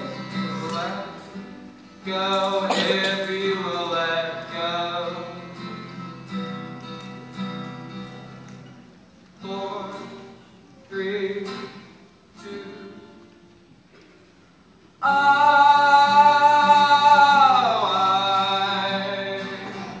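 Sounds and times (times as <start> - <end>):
man singing: 0.0 - 6.0, 9.4 - 13.2, 15.0 - 20.0
acoustic guitar strumming: 0.0 - 20.0.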